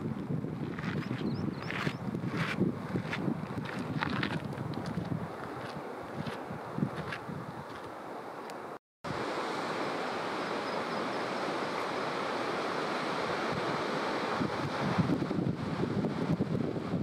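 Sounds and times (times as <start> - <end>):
wind buffeting microphone: 0.0 - 7.9, 13.3 - 17.0
sea surf on rocky shore: 8.0 - 17.0.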